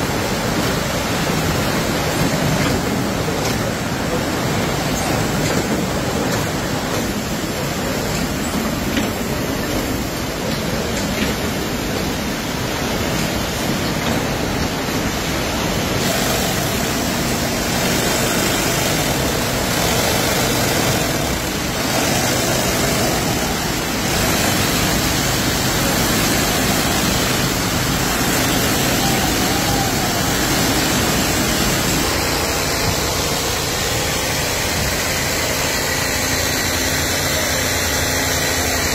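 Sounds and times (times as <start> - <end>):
industrial sewing machines: 0.0 - 38.9
power loom weaving: 0.0 - 38.9.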